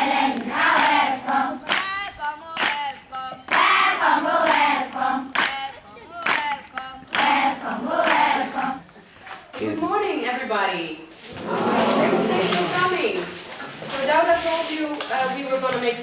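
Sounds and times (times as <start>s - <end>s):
children singing: 0.0s - 9.0s
hand claps: 0.3s - 3.8s, 4.4s - 9.4s.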